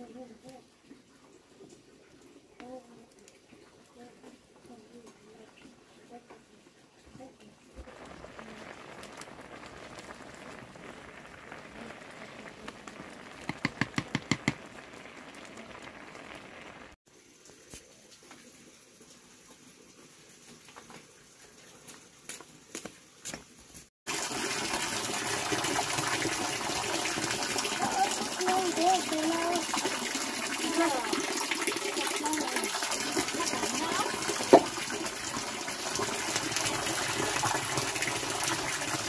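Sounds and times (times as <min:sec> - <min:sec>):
water gushing: 0:07.8 - 0:21.7, 0:24.1 - 0:39.0.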